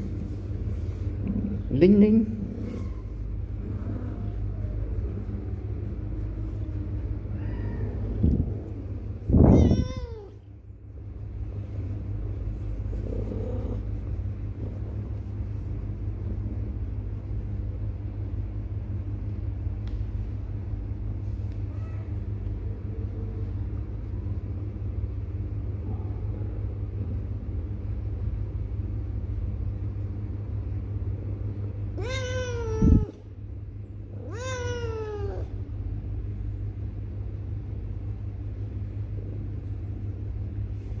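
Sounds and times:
cat meowing: 0:09.3 - 0:10.4, 0:32.0 - 0:33.2, 0:34.2 - 0:35.6.

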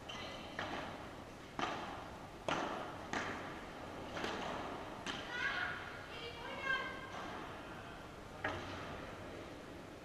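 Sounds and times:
padel ball impacts echoing: 0:01.6 - 0:05.4.

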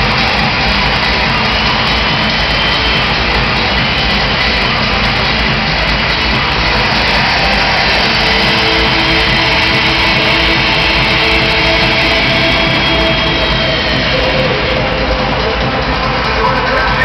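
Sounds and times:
loud vehicle engines roaring: 0:00.0 - 0:17.0.

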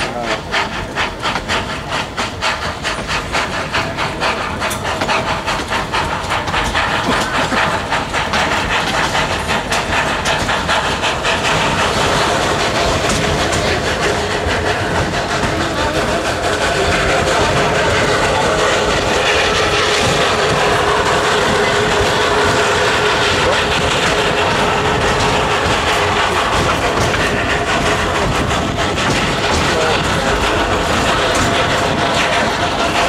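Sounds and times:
train running on rails: 0:00.0 - 0:33.0.

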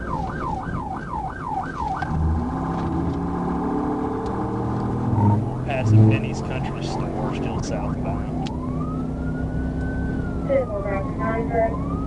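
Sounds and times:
police siren yelp: 0:00.0 - 0:02.5, 0:05.1 - 0:12.0.

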